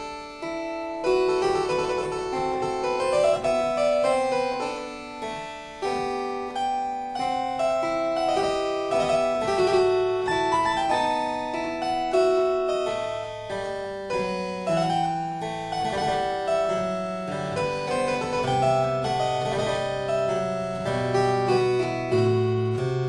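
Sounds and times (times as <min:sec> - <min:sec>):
keyboard background music: 0:00.0 - 0:23.0.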